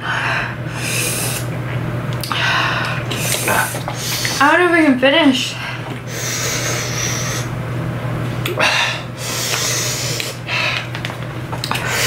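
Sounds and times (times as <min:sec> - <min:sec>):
person breathing heavily: 0:02.3 - 0:04.4, 0:05.5 - 0:07.5, 0:08.6 - 0:11.0.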